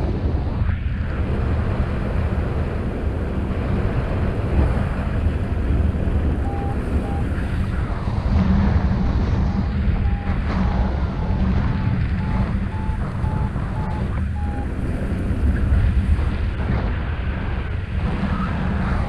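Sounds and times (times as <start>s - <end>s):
wind buffeting microphone: 0.0s - 19.0s
variometer short beeps: 6.4s - 7.3s, 10.0s - 14.7s.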